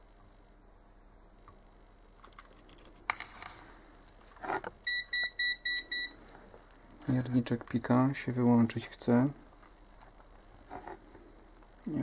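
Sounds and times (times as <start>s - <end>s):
multimeter short high beeps: 4.8s - 6.2s.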